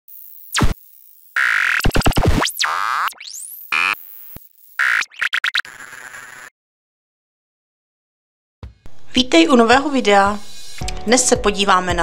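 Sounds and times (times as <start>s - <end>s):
choppy buzzing glitch tones: 0.1s - 6.5s.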